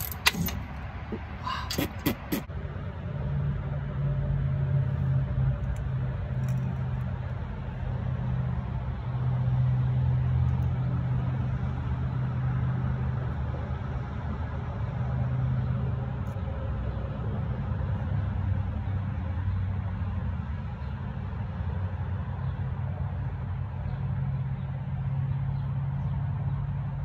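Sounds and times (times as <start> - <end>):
low vehicle rumble: 0.0 - 27.0.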